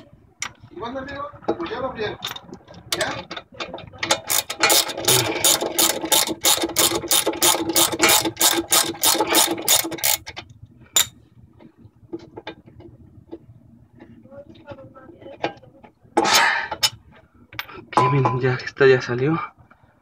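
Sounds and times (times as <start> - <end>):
ratchet wrench clicking: 4.2 - 10.3.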